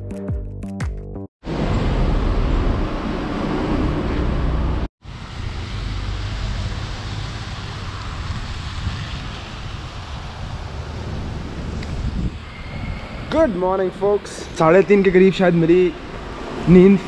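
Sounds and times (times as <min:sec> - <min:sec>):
traffic on wet road: 0:01.5 - 0:17.0
wind buffeting microphone: 0:07.3 - 0:17.0.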